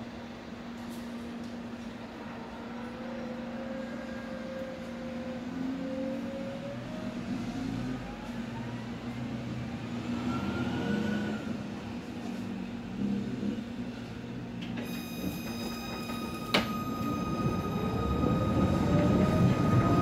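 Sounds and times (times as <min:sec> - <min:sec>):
tram rumble: 0:00.0 - 0:20.0
traction drive whine: 0:14.6 - 0:20.0
high-pitched tone: 0:14.9 - 0:20.0.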